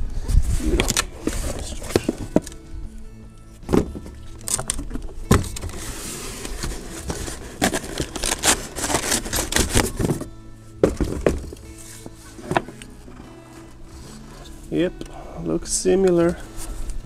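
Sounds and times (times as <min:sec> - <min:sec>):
cardboard rustling and scraping: 0:00.3 - 0:02.5, 0:03.7 - 0:14.6.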